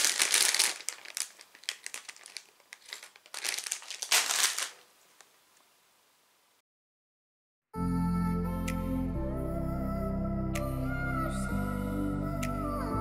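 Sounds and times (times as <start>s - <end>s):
plastic bags crinkling: 0.0s - 5.4s.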